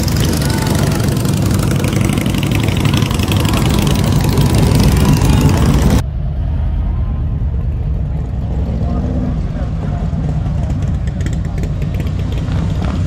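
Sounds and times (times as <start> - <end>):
motorcycle engines rumbling: 0.0 - 13.0.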